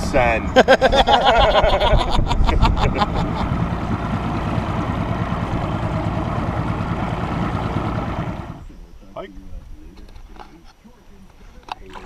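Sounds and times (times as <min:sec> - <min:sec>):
boat wake rushing: 0:00.0 - 0:08.7
outboard motor drone: 0:02.6 - 0:08.7.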